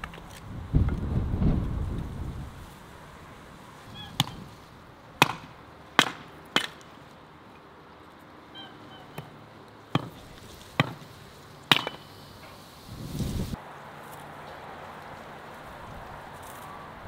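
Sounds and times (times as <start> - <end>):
hatchet chopping firewood: 5.2 - 7.0, 9.2 - 11.1, 11.7 - 12.2.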